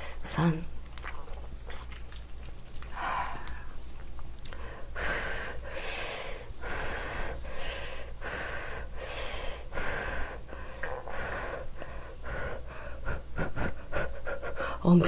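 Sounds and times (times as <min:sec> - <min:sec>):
wet spaghetti twirling noises: 0:00.0 - 0:04.7.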